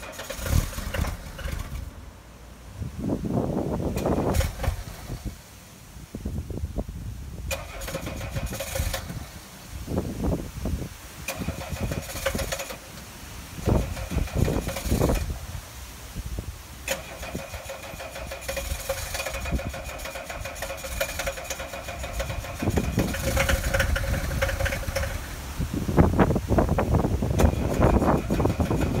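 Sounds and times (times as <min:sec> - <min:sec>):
starter motor cranking: 0:00.0 - 0:02.0, 0:03.9 - 0:05.4, 0:07.4 - 0:09.6, 0:11.2 - 0:15.6, 0:16.8 - 0:29.0
diesel engine firing unevenly: 0:00.0 - 0:29.0.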